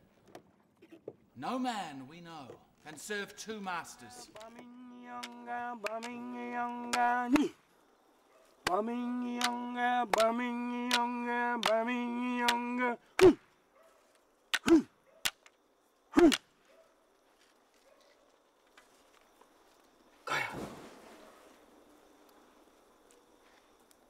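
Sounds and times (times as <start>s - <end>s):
campfire flaring rush: 18.6s - 24.0s.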